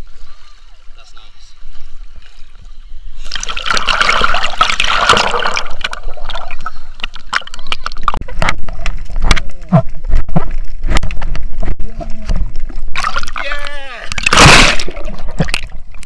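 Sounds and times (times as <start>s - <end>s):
water splashing against camera: 1.6s - 16.0s
underwater clicks and knocks: 5.1s - 13.3s, 14.1s - 16.0s.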